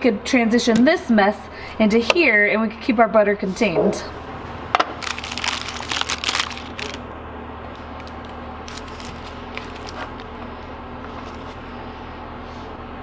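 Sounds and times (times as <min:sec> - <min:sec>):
plastic wrapper crinkling: 0:04.8 - 0:07.0, 0:08.0 - 0:10.3.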